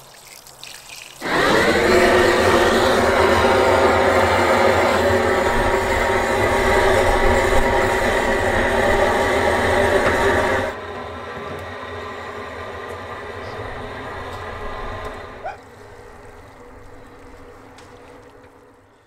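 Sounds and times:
gas torch flame blowing: 1.2 - 18.5
quieter steady rush: 1.2 - 18.9.

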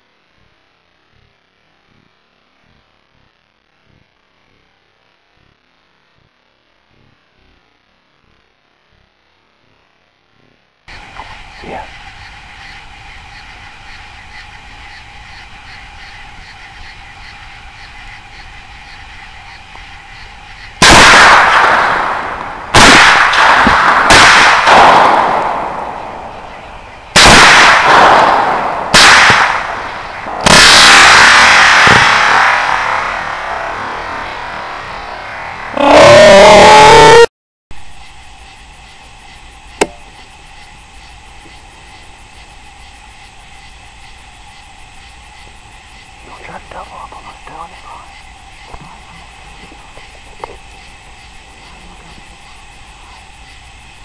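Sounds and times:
faint hiss with hum: 0.0 - 35.9, 37.8 - 54.0
rifle shots with echo: 20.8 - 26.3, 27.1 - 33.8
sharp click: 39.8 - 40.0.

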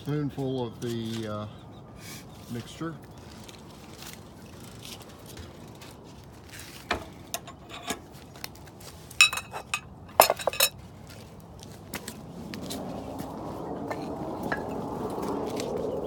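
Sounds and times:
spoon clinking against bowl: 9.2 - 10.7.

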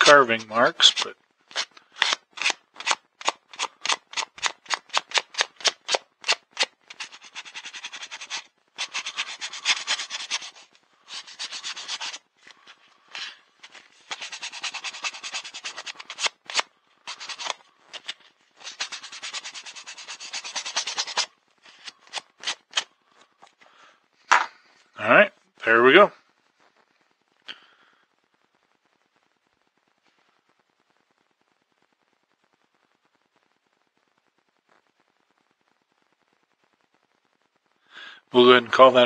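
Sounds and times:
sandpaper rubbing on wood: 0.0 - 12.2, 13.1 - 22.8.

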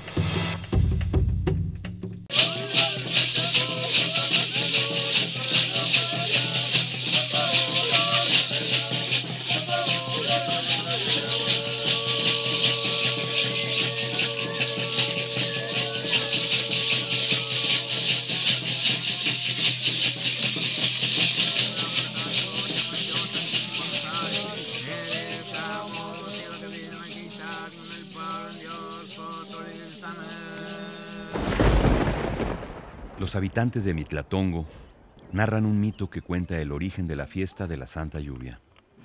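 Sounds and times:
maracas shaking: 2.3 - 32.6.

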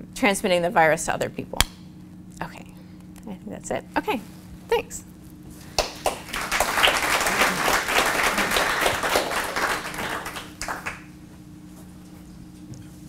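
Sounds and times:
audience applauding: 5.8 - 11.1.

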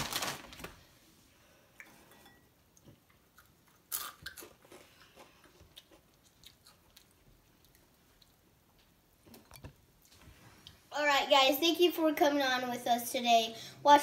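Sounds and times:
child crunching chips: 3.3 - 7.2.

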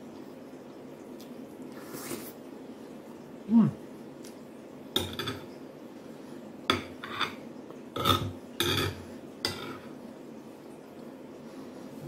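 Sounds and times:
metal spoon scraping a plate: 7.0 - 7.4, 8.0 - 9.8.

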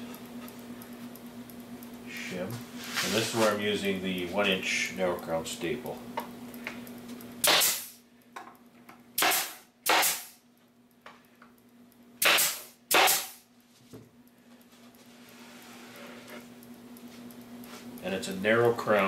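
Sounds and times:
pneumatic stapler shots: 7.4 - 8.0, 9.2 - 10.4, 12.2 - 13.4.

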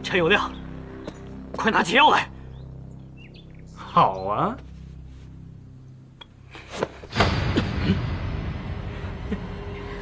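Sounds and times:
sudden thud: 7.0 - 8.9.

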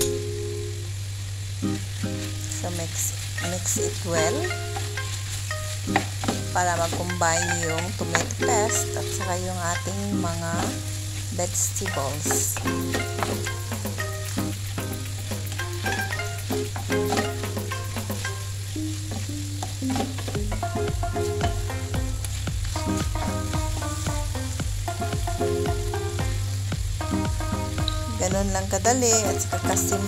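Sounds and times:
quiet background music: 0.0 - 30.0
vegetables sizzling in frying pan: 0.0 - 30.0
wooden spoon scraping pan: 3.0 - 18.5.

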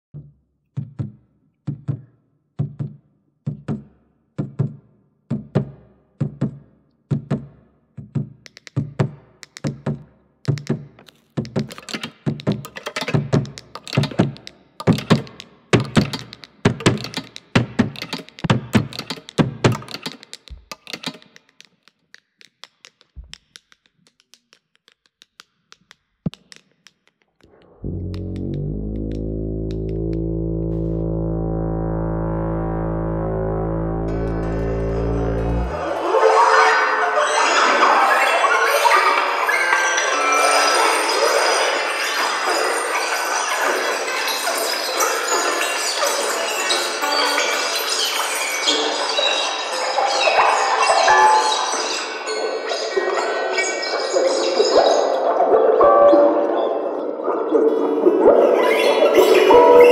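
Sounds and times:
rhythmic thuds: 0.2 - 36.1
clatter of knocks and clicks: 11.0 - 24.4
steady droning tone: 27.5 - 36.4.

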